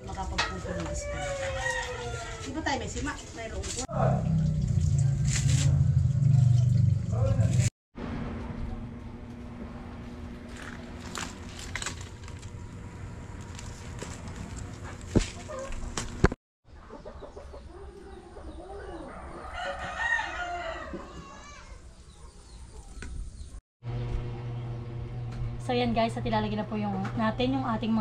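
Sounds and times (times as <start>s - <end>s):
rooster crowing: 0.7s - 2.6s, 18.4s - 22.0s.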